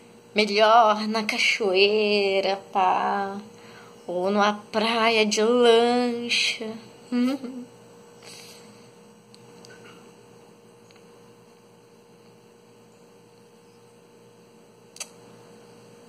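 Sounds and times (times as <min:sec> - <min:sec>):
low steady hum: 0:00.0 - 0:16.0
short click: 0:15.0 - 0:15.2.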